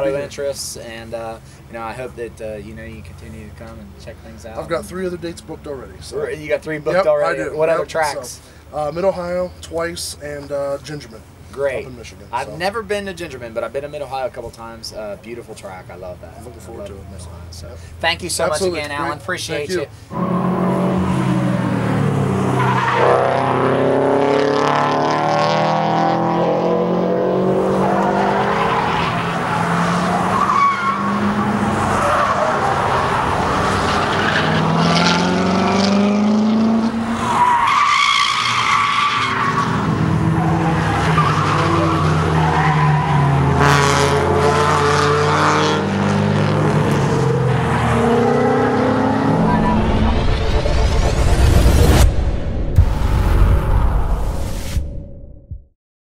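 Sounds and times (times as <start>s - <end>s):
race car engines passing: 0.0s - 52.2s
tires squealing: 18.1s - 52.0s.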